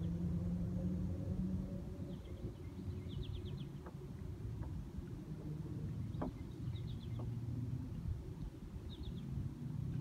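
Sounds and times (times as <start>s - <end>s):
low hum and rumble: 0.0s - 10.0s.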